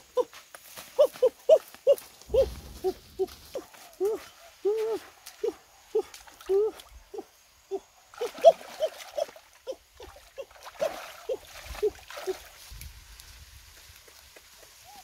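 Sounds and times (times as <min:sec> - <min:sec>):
water splashing in creek: 0:00.0 - 0:15.0
puppies yipping: 0:01.0 - 0:05.0.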